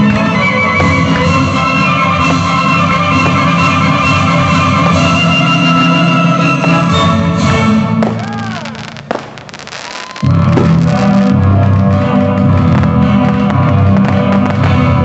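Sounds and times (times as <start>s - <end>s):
fireworks crackling: 0.0s - 6.1s, 7.9s - 15.0s
firework whistle: 0.0s - 14.9s
loud music: 0.0s - 15.0s
firework bang: 8.0s - 15.0s.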